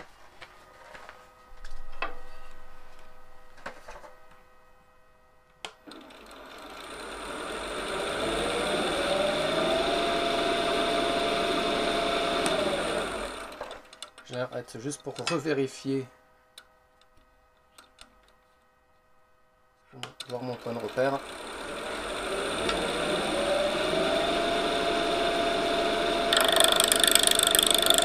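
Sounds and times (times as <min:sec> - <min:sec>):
wood lathe motor whine: 0:05.8 - 0:13.8, 0:20.5 - 0:28.0.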